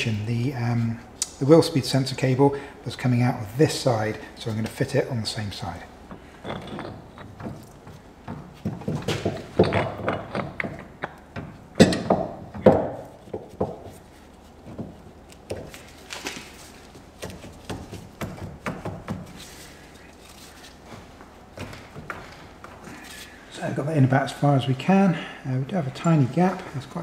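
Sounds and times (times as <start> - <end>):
metal clunks and knocks: 6.1 - 13.9.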